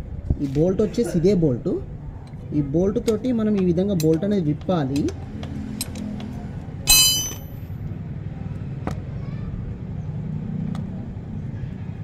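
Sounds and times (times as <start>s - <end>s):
spanner metallic clink: 6.9s - 7.6s.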